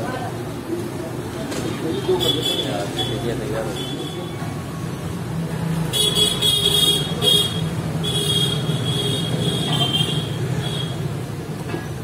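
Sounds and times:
low rumble of engines: 0.0s - 12.0s
vehicle horns honking: 5.9s - 11.0s.

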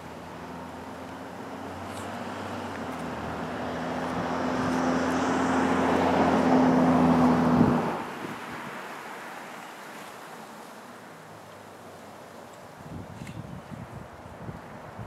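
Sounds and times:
vehicle engine passing by: 0.0s - 8.2s.

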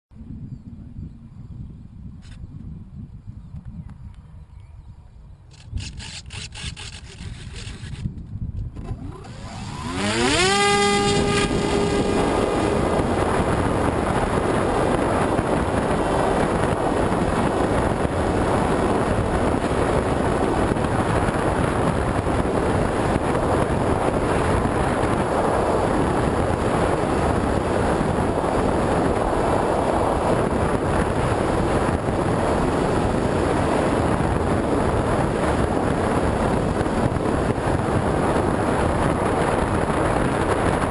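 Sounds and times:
wind buffeting microphone: 0.1s - 40.9s
propeller rush: 5.5s - 40.9s
electric motor whine: 8.7s - 14.3s.

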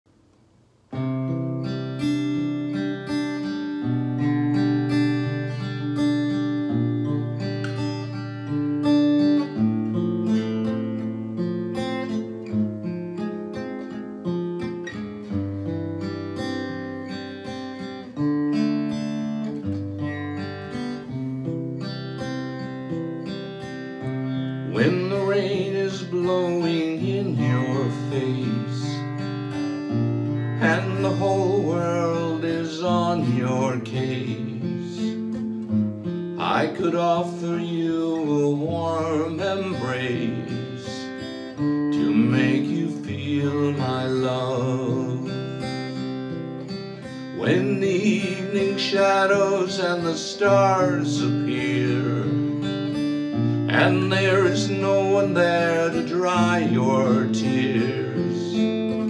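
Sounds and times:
acoustic guitar chords: 0.1s - 59.0s
man singing: 24.6s - 29.2s, 30.5s - 35.2s, 36.4s - 46.0s, 47.3s - 59.0s.

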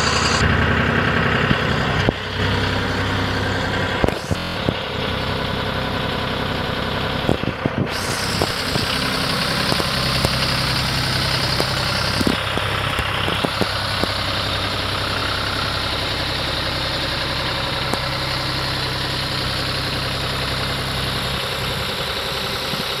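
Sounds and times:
tractor diesel engine idling: 0.0s - 23.0s.

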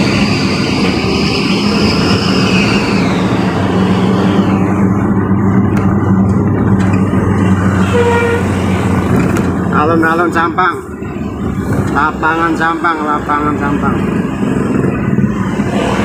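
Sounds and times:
high whine: 0.0s - 16.0s
vehicle engine droning: 0.0s - 16.0s
short horn honk: 7.8s - 8.5s.

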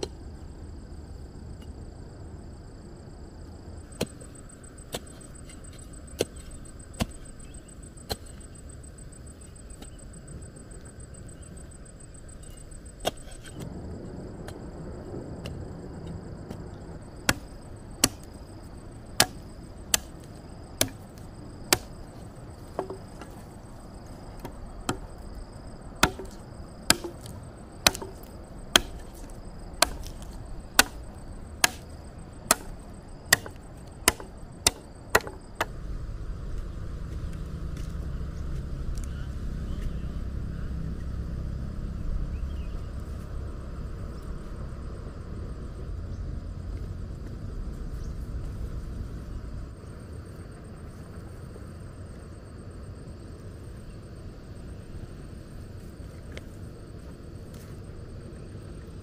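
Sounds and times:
sharp chopping blows: 17.2s - 18.4s, 19.2s - 22.0s, 26.0s - 31.9s, 32.5s - 35.8s.

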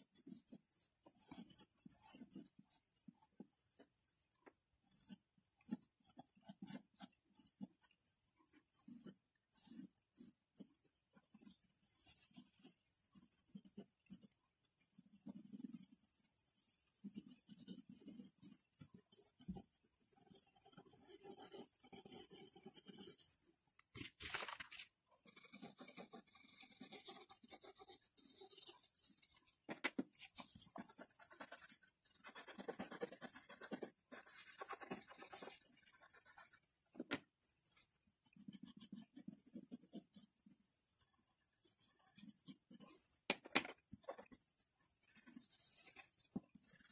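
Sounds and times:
pencil scratching on paper: 0.0s - 4.2s, 4.9s - 23.4s, 25.2s - 36.8s, 37.4s - 46.9s.

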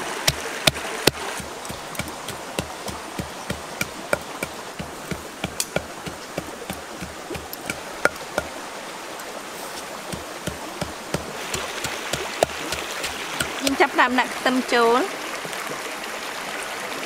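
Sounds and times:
stream running: 0.0s - 17.0s
pestle pounding in a mortar: 0.2s - 8.5s, 10.1s - 13.8s.

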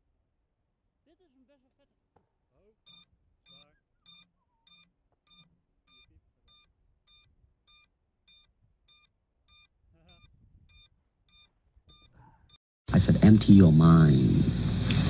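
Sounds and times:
high-pitched electronic beeps: 2.9s - 12.1s.

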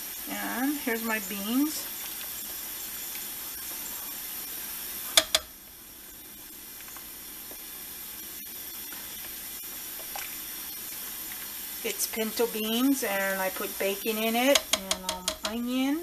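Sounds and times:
steady hiss: 0.0s - 16.0s
sharp knocks: 5.2s - 5.5s
spoon stirring beans: 13.4s - 15.8s.

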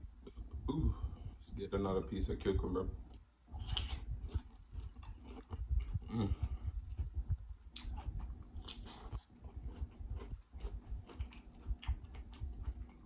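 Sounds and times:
crunchy wet chewing: 3.0s - 13.0s.

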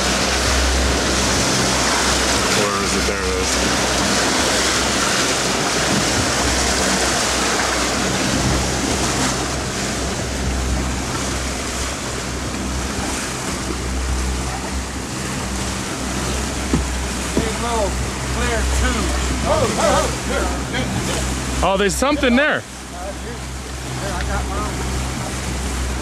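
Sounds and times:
outboard motors humming: 0.0s - 26.0s
water and wind rushing: 0.0s - 26.0s.

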